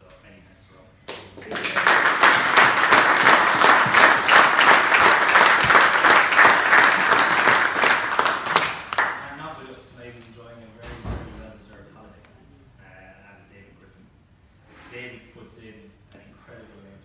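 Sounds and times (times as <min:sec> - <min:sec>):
hands clapping close to microphone: 0:01.1 - 0:09.2
audience applauding: 0:01.4 - 0:09.2.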